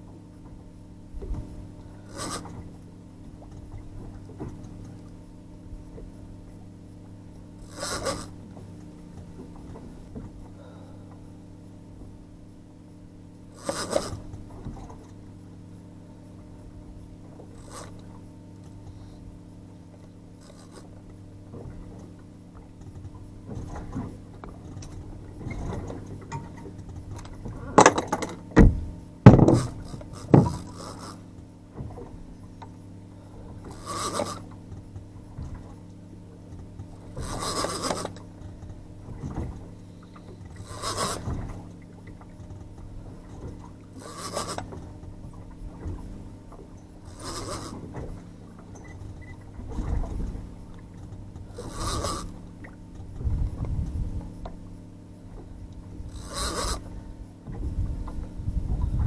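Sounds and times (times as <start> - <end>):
outboard motor humming: 0.0 - 59.0
fishing reel rasping: 2.0 - 2.5, 7.6 - 8.4, 13.5 - 14.2, 17.6 - 18.0, 20.4 - 20.9, 29.6 - 31.2, 33.6 - 34.5, 37.2 - 38.2, 40.6 - 41.3, 44.0 - 44.7, 47.0 - 47.8, 51.5 - 52.4, 56.1 - 56.9.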